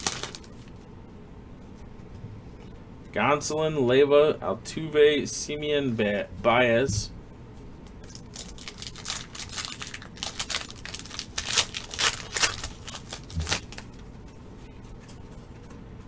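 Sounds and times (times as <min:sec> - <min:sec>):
foil wrapper tearing and crinkling: 0:00.0 - 0:00.7, 0:08.1 - 0:14.0.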